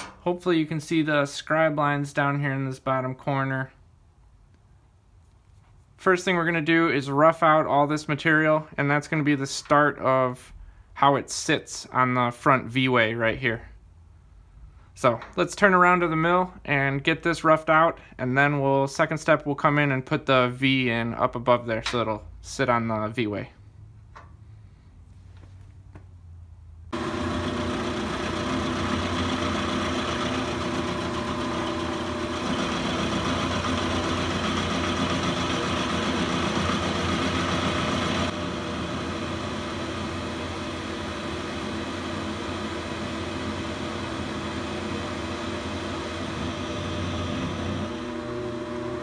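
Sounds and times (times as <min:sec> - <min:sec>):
milling machine cutting metal: 0:27.0 - 0:49.0.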